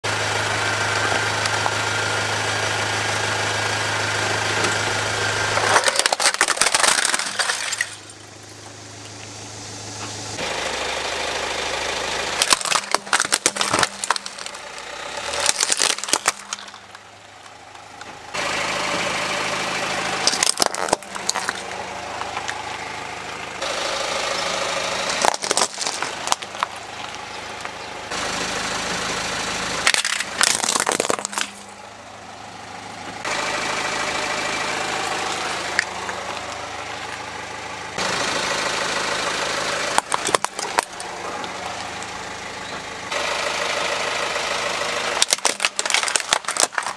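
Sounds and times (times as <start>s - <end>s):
car engine running: 0.0s - 46.9s
plastic toys crunching under tyre: 5.5s - 8.6s, 12.4s - 18.1s, 20.2s - 22.6s, 24.9s - 27.8s, 29.8s - 31.8s, 39.9s - 42.1s, 45.1s - 46.9s.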